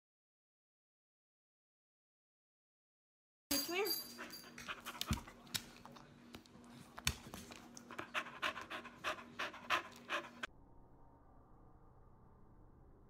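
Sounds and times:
dog panting: 0:04.1 - 0:06.0, 0:06.6 - 0:10.5.

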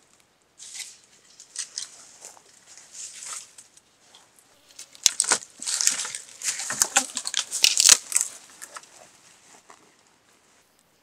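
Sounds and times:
dry grass and twigs crackling: 0:00.0 - 0:11.0
twigs snapping: 0:00.7 - 0:02.0, 0:04.8 - 0:08.9.

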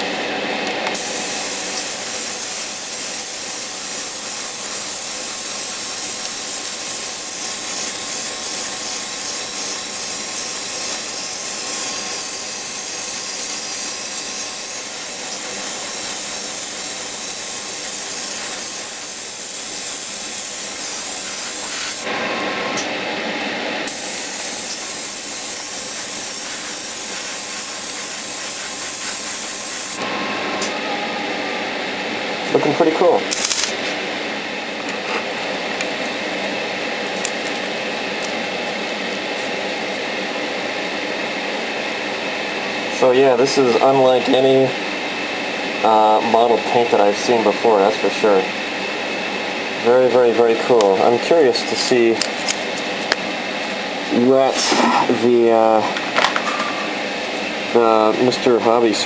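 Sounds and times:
exhaust fan humming: 0:00.0 - 0:59.0
airbrush spraying paint: 0:00.9 - 0:30.6, 0:43.0 - 0:59.0.

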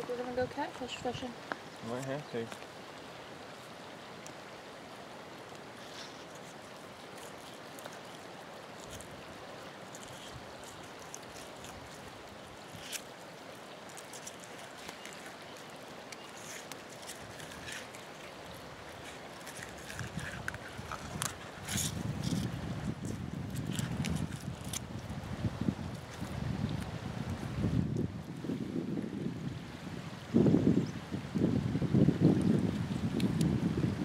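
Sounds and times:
creek water rushing: 0:00.0 - 0:34.0.

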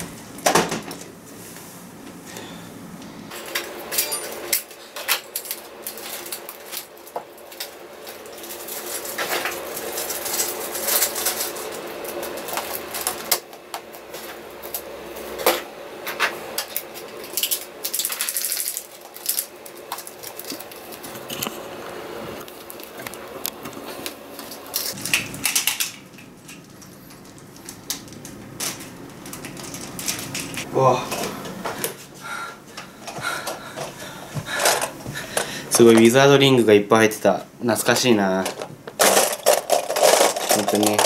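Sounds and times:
packaging rustling: 0:05.2 - 0:13.4, 0:16.8 - 0:21.6, 0:22.4 - 0:30.7, 0:38.4 - 0:41.0
plastic toys clattering: 0:16.7 - 0:21.5, 0:24.4 - 0:30.6, 0:34.6 - 0:36.2, 0:37.9 - 0:41.0.

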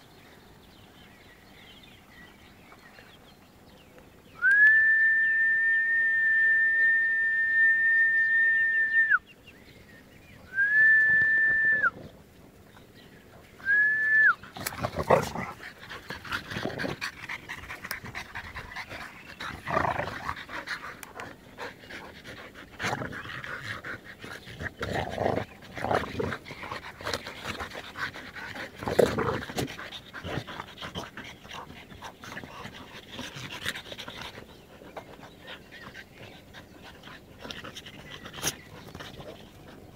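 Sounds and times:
whistle blown: 0:04.4 - 0:09.2, 0:10.6 - 0:11.9, 0:13.6 - 0:14.3
dogs panting: 0:14.4 - 0:39.9.

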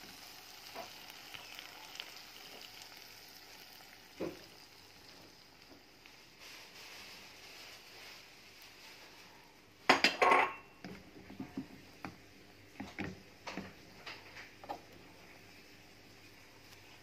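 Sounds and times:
faint frying sizzle: 0:00.0 - 0:17.0
frying pan clattering: 0:09.9 - 0:10.7.

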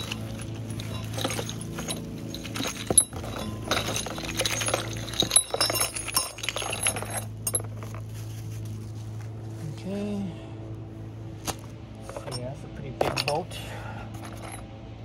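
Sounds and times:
metal bolts clinking: 0:00.0 - 0:08.0, 0:11.4 - 0:13.5, 0:14.1 - 0:14.7
low hum: 0:00.0 - 0:15.0.

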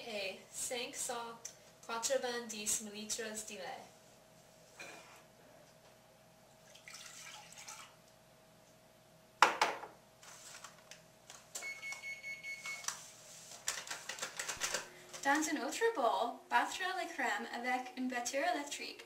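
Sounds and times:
milk pouring into a bowl: 0:06.6 - 0:08.0.

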